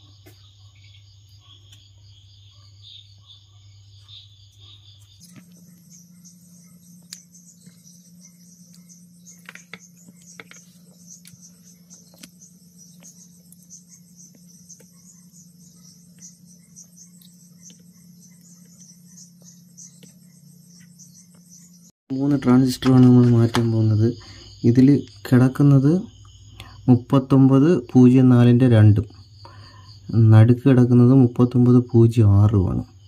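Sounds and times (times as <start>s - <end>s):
low hum: 0.0s - 25.3s
crickets chirping: 0.0s - 33.0s.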